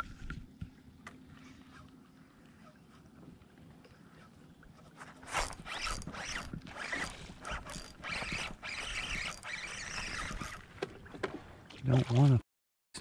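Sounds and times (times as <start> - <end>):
fishing reel cranking: 5.2 - 10.7.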